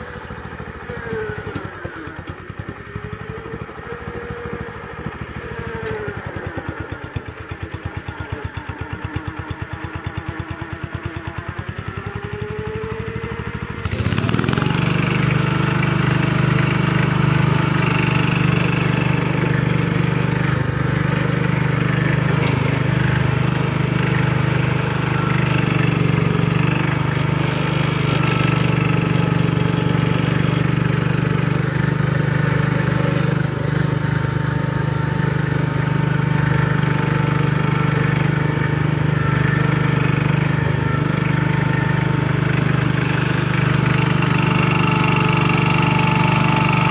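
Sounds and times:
garden tractor engine running: 0:00.0 - 0:46.9.

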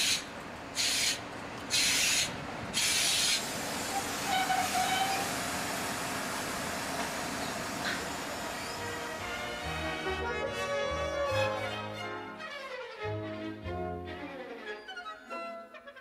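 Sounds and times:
steady steam hiss: 0:00.0 - 0:09.4
steam locomotive chuffing: 0:00.0 - 0:09.6.

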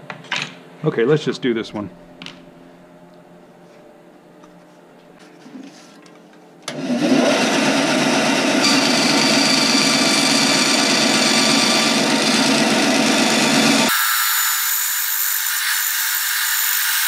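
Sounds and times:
bandsaw cutting wood: 0:06.7 - 0:17.0.

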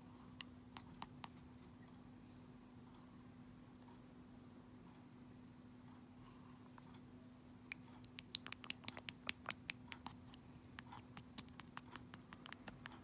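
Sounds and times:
parrot beak clicking on plastic: 0:07.7 - 0:13.0.

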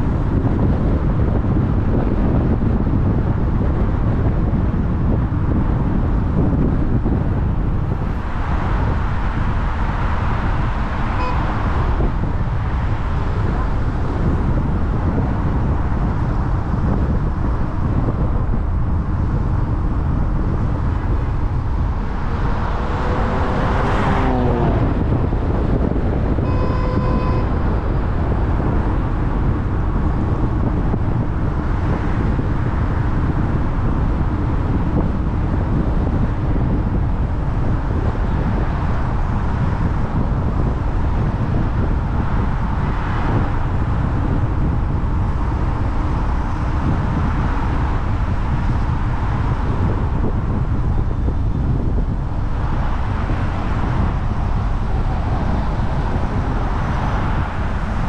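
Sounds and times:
car road and tyre noise: 0:00.0 - 0:58.0
brief beep: 0:11.2 - 0:11.5
vehicle passing by: 0:20.5 - 0:26.4, 0:52.8 - 0:58.0.

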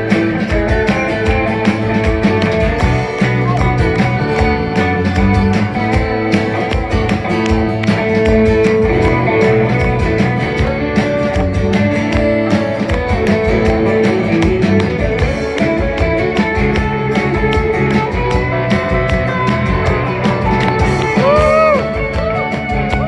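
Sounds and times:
drum beat: 0:00.0 - 0:23.0
electric guitar lead lines: 0:00.0 - 0:23.0
live rock band playing: 0:00.0 - 0:23.0.

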